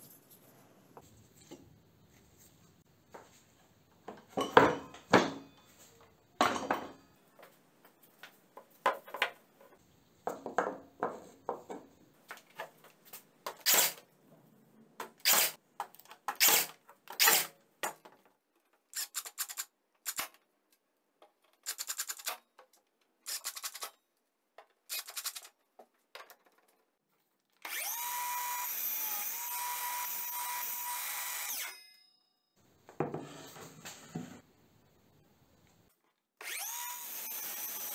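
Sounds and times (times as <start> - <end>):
parts clattering on wooden bench: 4.0 - 7.6, 8.2 - 13.6, 32.9 - 34.4
cordless driver whirring: 27.6 - 31.7, 36.4 - 37.9.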